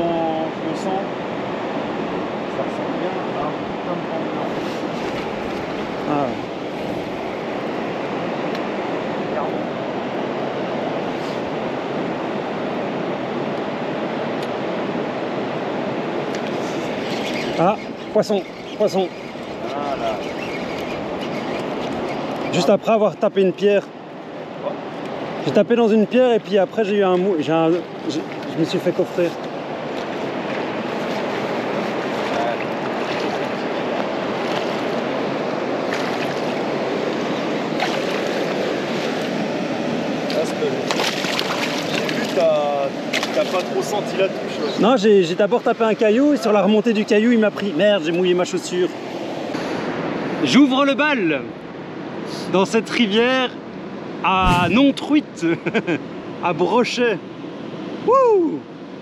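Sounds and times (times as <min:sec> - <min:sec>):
river rapids rushing: 0:00.0 - 0:23.6.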